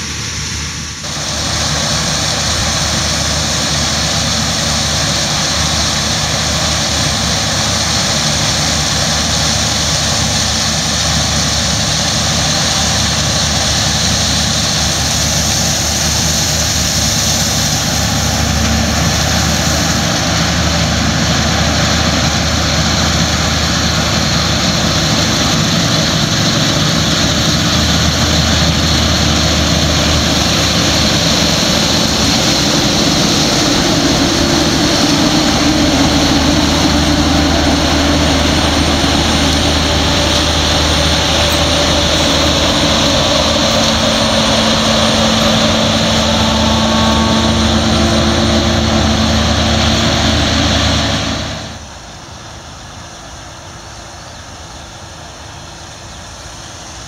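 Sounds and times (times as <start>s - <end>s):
combine harvester engine drone: 0.0s - 57.0s
strong even hiss: 0.0s - 57.0s.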